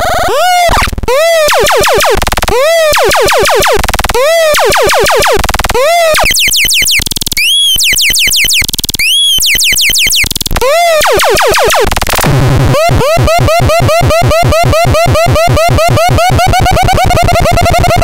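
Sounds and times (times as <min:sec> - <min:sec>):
swooping electronic chirps: 0:00.2 - 0:18.0
rapid buzzing clicks: 0:00.6 - 0:14.6.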